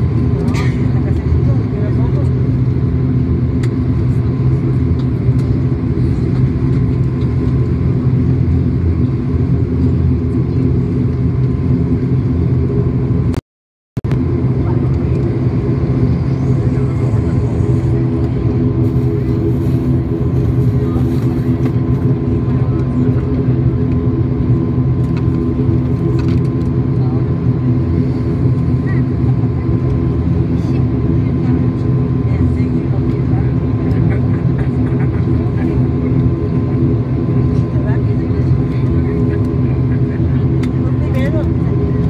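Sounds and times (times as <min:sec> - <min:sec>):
jet engine rumble in cabin: 0:00.0 - 0:13.4, 0:14.0 - 0:42.0
steady hum: 0:14.1 - 0:42.0.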